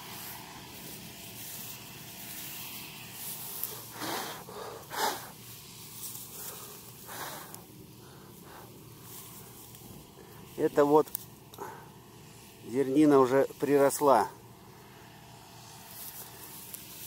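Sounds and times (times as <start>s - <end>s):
close rustles: 0.0s - 12.6s
hand rustling dry straw stubble: 0.0s - 17.0s
steady outdoor hiss: 0.0s - 17.0s.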